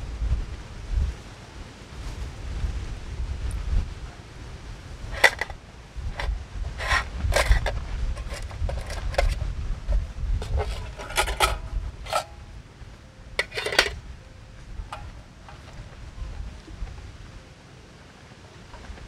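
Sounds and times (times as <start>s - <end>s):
wind rumble on microphone: 0.0s - 19.0s
light metal clinks and scrapes: 5.1s - 12.4s, 13.4s - 14.0s, 14.7s - 16.0s.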